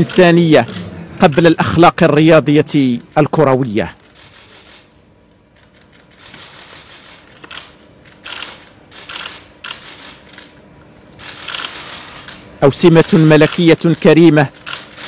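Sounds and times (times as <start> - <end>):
faint steady hum: 0.0 - 15.0
camera shutter clicks: 6.2 - 10.6, 11.2 - 12.4, 13.0 - 13.8, 14.6 - 15.0.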